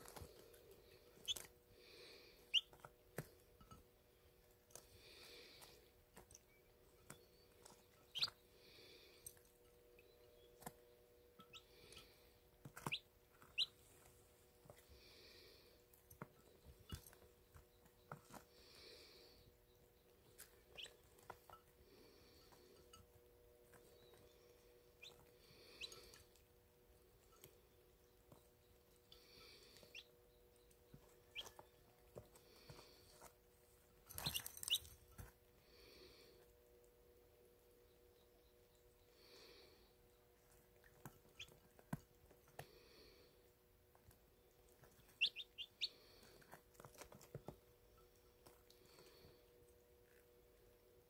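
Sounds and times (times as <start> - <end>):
chicks peeping: 0.0 - 3.8, 6.4 - 8.5, 10.0 - 14.1, 16.2 - 21.6, 23.7 - 26.4, 27.1 - 32.9, 34.2 - 34.9, 39.9 - 41.9, 44.0 - 47.6.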